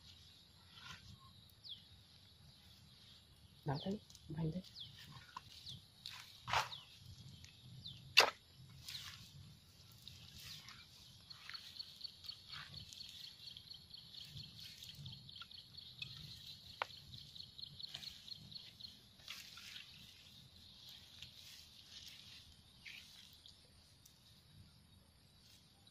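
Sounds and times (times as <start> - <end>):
sharp snap: 8.1 - 8.4.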